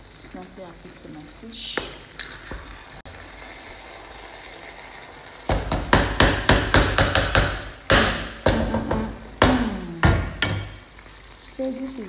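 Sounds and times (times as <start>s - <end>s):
wooden spoon knocking on a pan: 5.5s - 10.8s.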